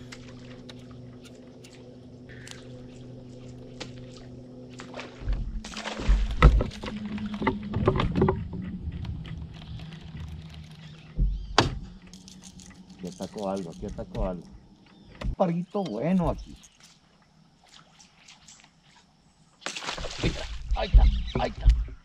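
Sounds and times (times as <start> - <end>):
steady low hum: 0.0 - 17.6
lure splashing in water: 19.7 - 20.7.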